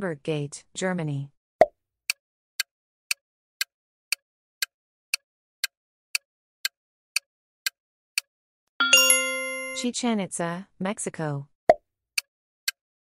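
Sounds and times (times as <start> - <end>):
ringing chime: 8.8 - 9.8
countdown timer ticking: 8.8 - 9.9.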